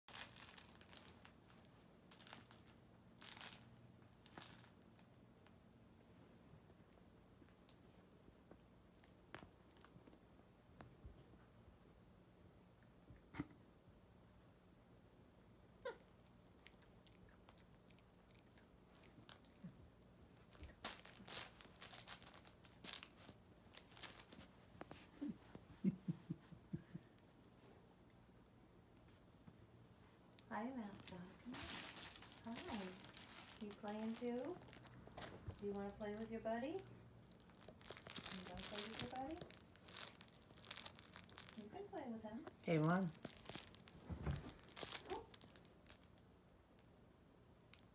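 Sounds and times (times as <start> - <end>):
puppy chewing toy crinkling: 0.1 - 5.6, 6.9 - 10.4, 15.8 - 25.3, 30.3 - 46.9, 47.6 - 47.9
puppy chewing plush toy: 15.8 - 25.3, 37.2 - 41.8.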